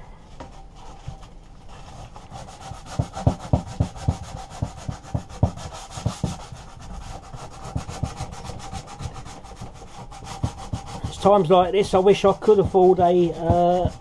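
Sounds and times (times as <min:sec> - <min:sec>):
sandpaper rubbing on metal: 0:01.7 - 0:14.0.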